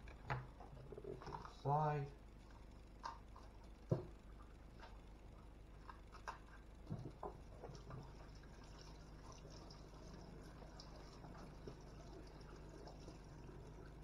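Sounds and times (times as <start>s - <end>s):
faint knocks and clicks: 2.4s - 5.0s, 5.8s - 8.2s.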